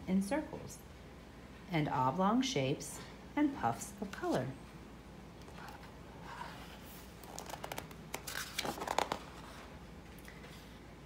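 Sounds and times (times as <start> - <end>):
paper page turning: 5.5 - 9.7.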